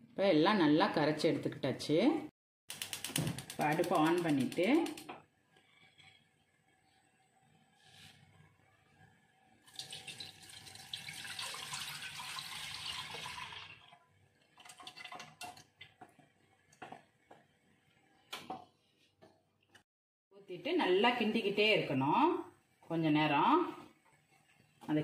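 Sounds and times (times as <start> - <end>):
liquid splashing into pot: 9.7 - 16.0.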